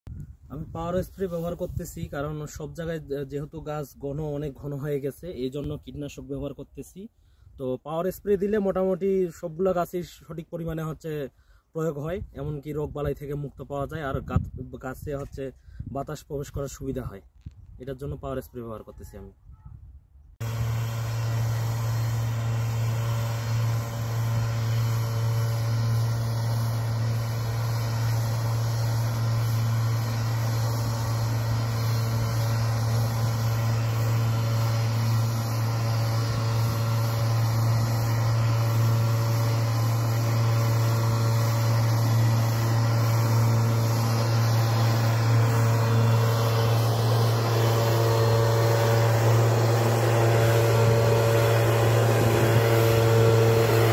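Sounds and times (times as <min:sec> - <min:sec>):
power sprayer engine drone: 0:20.4 - 0:53.9.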